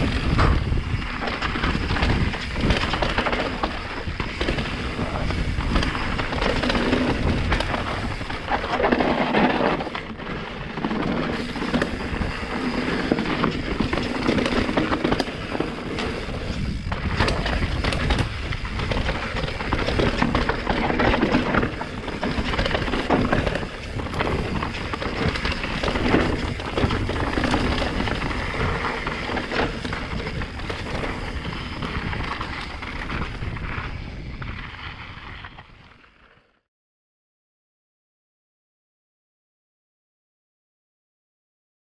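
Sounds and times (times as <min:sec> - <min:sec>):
wind buffeting microphone: 0:00.0 - 0:08.8, 0:11.3 - 0:35.9
bike chain and frame rattling: 0:00.0 - 0:35.4
tyres rumbling on rocky dirt: 0:00.0 - 0:36.3.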